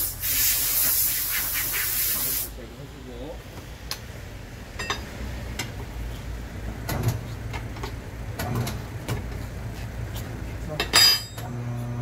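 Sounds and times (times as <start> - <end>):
tyre changer motor hum: 11.4 - 12.0.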